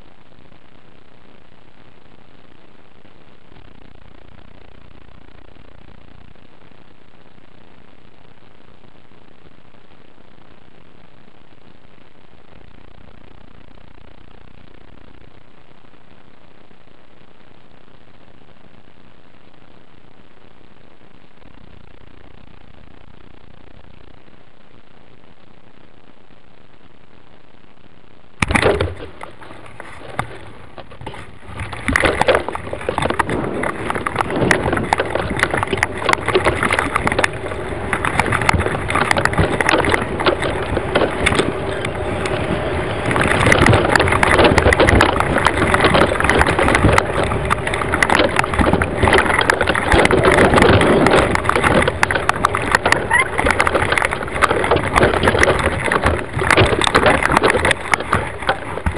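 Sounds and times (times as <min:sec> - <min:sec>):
payload rattling and knocking: 0:28.4 - 0:58.9
wind buffeting microphone: 0:28.6 - 0:58.9.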